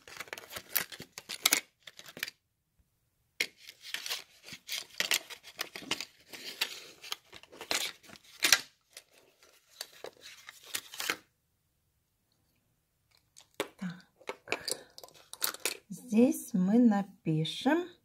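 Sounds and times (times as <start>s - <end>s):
plastic packaging crackling and tearing: 0.0s - 2.4s, 3.5s - 11.2s.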